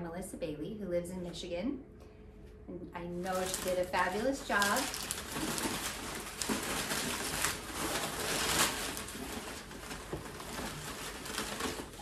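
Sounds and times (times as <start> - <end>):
packing paper rustling: 3.2 - 12.0.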